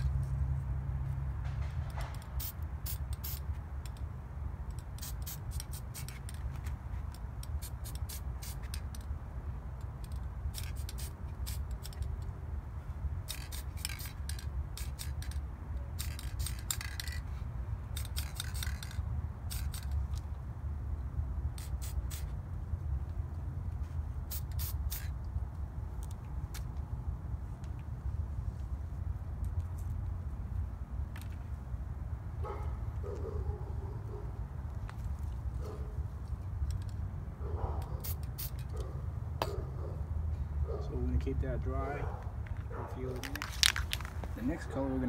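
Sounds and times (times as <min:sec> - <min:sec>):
spray-paint can hissing: 0:02.3 - 0:03.5, 0:04.7 - 0:06.4, 0:07.4 - 0:09.0, 0:10.5 - 0:12.1, 0:13.2 - 0:15.4, 0:16.0 - 0:17.2, 0:17.9 - 0:19.9, 0:21.6 - 0:22.4, 0:24.2 - 0:25.2, 0:38.0 - 0:38.7.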